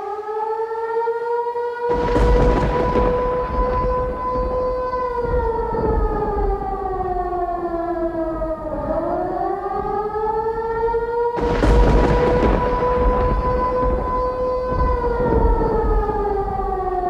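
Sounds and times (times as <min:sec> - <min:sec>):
sustained siren-like tone: 0:00.0 - 0:17.0
low rumble: 0:01.9 - 0:09.1, 0:11.4 - 0:17.0.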